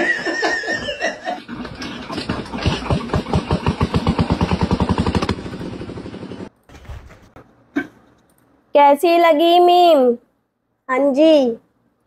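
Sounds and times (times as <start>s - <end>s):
person laughing: 0.0s - 1.5s
small engine running: 1.4s - 6.5s.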